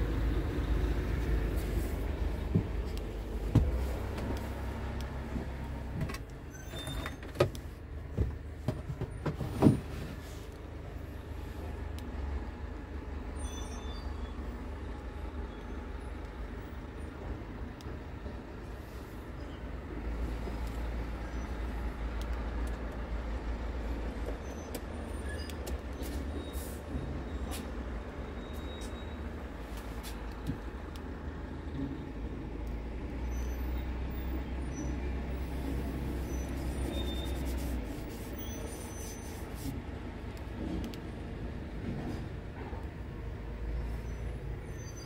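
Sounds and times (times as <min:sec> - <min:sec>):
diesel engine idling: 0:00.0 - 0:06.8.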